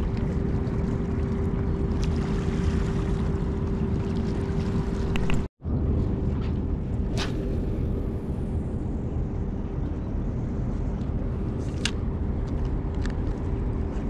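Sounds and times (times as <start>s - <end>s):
low droning rumble: 0.0s - 14.0s
fishing rod cast swish: 7.1s - 7.6s.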